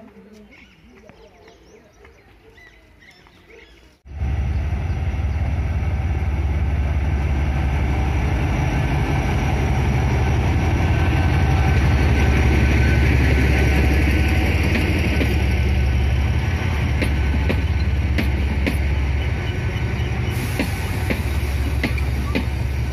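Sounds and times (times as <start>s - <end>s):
diesel locomotive rumbling: 4.0s - 22.9s.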